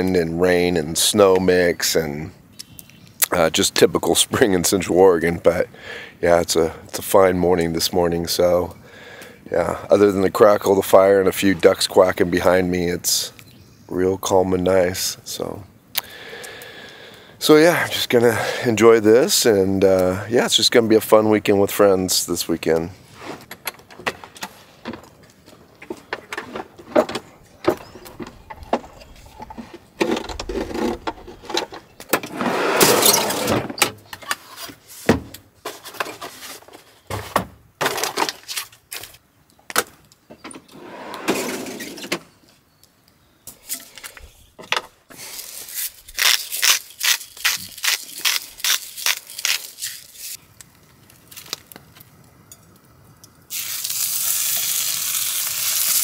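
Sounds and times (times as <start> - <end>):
food packages rustling: 45.2 - 52.0
steak sizzling in skillet: 53.5 - 56.0.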